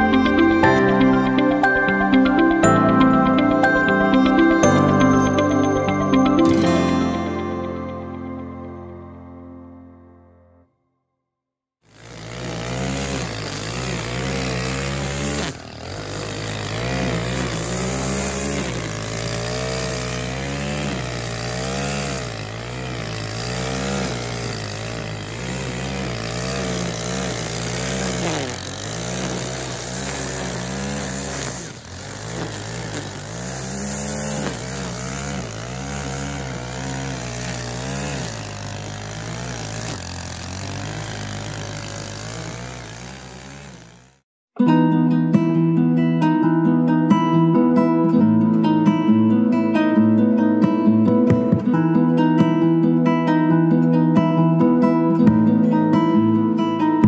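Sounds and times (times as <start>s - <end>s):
strimmer engine revving: 0.0s - 5.1s, 11.9s - 44.3s.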